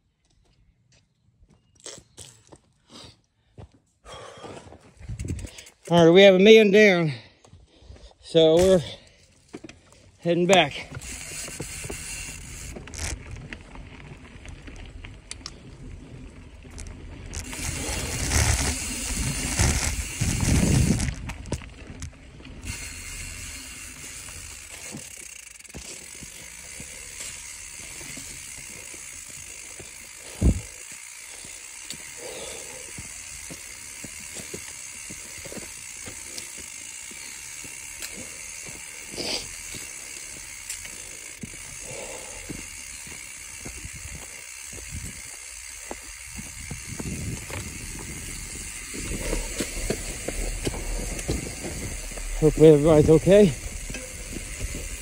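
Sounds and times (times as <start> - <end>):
bike tyres on dirt: 0.0 - 55.0
freehub ratchet clicking: 5.1 - 6.2, 10.5 - 13.3, 16.7 - 21.3, 22.6 - 55.0.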